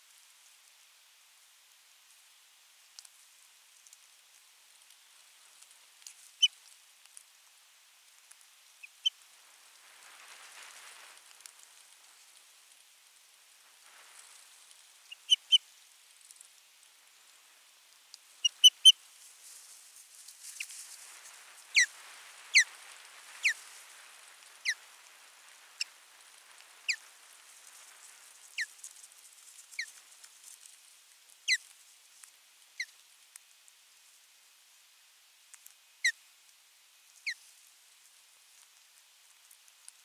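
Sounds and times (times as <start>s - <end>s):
soft rustling hiss: 0.0s - 40.0s
ospreys calling: 21.7s - 21.9s, 24.6s - 24.8s.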